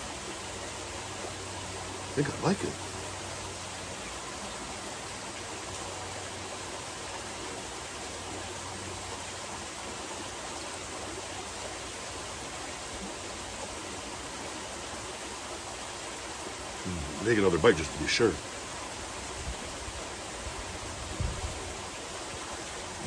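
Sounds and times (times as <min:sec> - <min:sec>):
waterfall splashing into pool: 0:00.0 - 0:23.0.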